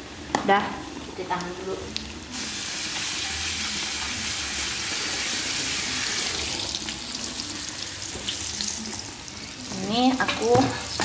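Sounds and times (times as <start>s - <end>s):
chicken deep-frying in oil: 2.0s - 11.0s.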